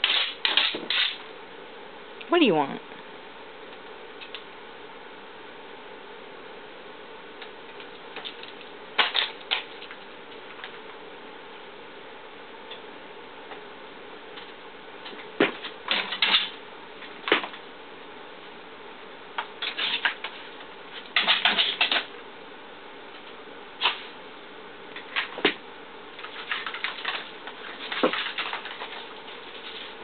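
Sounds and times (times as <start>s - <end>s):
dog claws skittering on floor: 0.0s - 1.2s, 7.7s - 10.8s, 14.4s - 16.6s, 19.6s - 22.1s, 26.2s - 30.0s
faint room hum: 0.0s - 30.0s.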